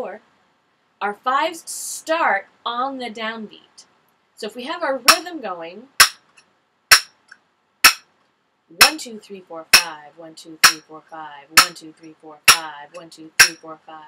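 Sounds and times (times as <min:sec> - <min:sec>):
finger cymbals clinking: 0:06.9 - 0:07.1.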